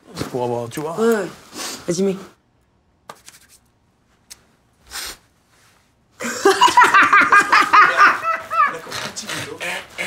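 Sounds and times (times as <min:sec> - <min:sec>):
short breathy hiss: 0:04.8 - 0:05.8
woman laughing loudly: 0:06.2 - 0:08.8.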